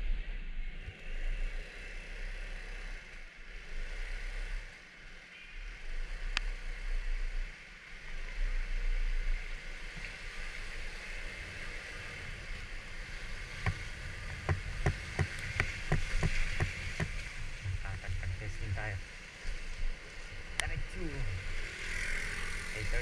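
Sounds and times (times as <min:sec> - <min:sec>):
scooter road and wind noise: 0:00.0 - 0:23.0
scooter knocking and rattling: 0:13.6 - 0:17.9.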